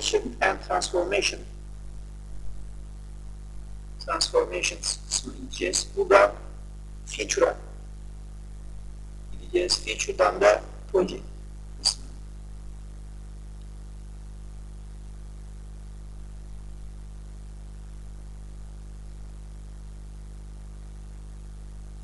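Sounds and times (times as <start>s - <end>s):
steady electrical hum: 0.0s - 22.0s
faint hiss: 3.6s - 7.9s.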